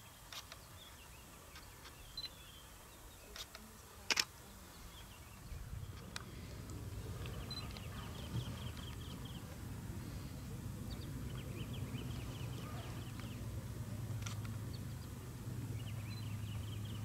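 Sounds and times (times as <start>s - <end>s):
small birds chirping: 0.0s - 17.0s
vehicle engine idling: 5.5s - 17.0s.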